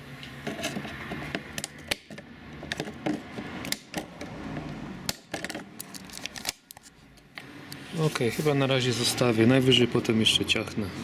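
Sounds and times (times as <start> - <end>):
plastic rustling and creaking: 5.4 - 7.0.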